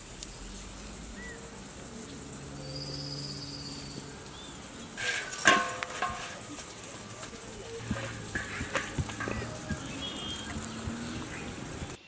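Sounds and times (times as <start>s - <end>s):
steady hiss: 0.0s - 12.0s
bird chirps: 0.2s - 5.4s, 6.2s - 12.0s
loud clatter: 5.0s - 12.0s.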